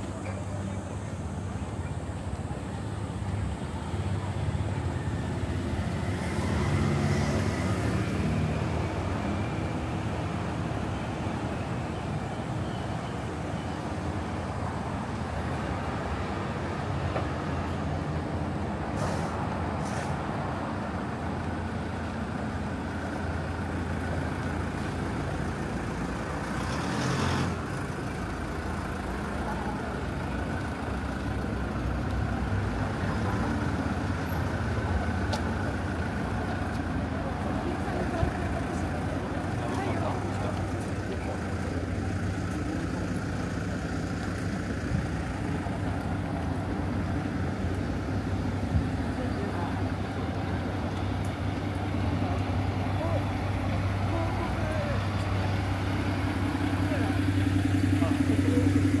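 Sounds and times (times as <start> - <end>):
traffic passing: 0.0 - 59.0
short high hisses: 19.0 - 20.2.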